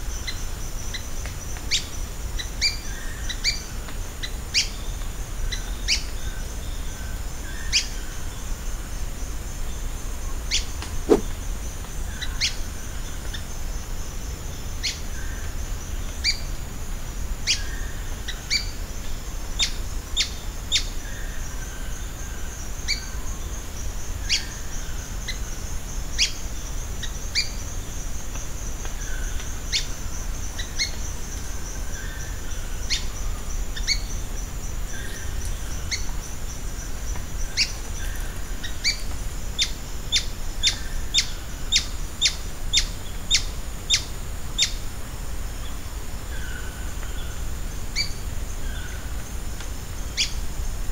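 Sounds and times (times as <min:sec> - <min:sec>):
high insect buzz: 0:10.4 - 0:12.4.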